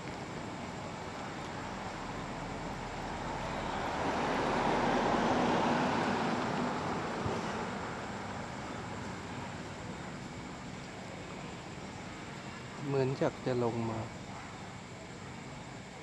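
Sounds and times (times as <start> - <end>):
vehicle passing by: 1.9 - 9.1.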